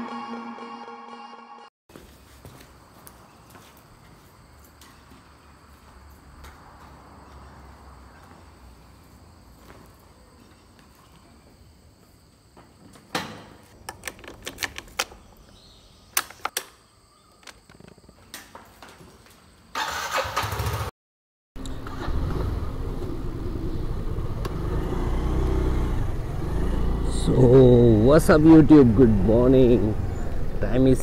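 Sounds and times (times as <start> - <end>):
scooter engine starting: 19.8 - 20.9, 21.6 - 27.3.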